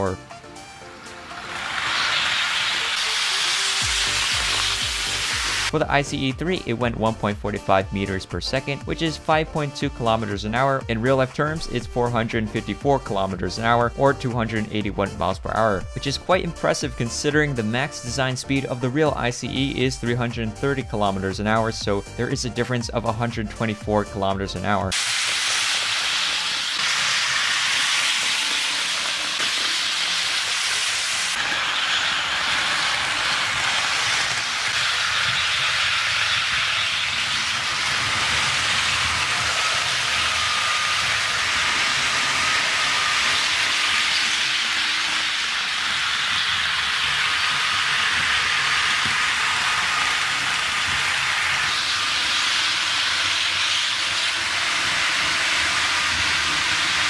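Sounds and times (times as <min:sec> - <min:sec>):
model train wheels hissing: 0:00.0 - 0:05.8, 0:24.9 - 0:57.0.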